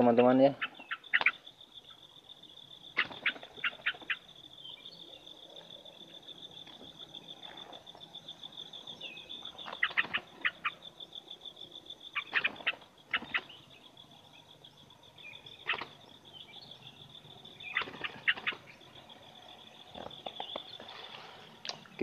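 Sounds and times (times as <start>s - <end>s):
high insect trill: 0.0s - 22.0s
bird wings flapping: 3.0s - 4.2s, 9.6s - 10.5s, 15.7s - 16.0s, 17.7s - 18.7s.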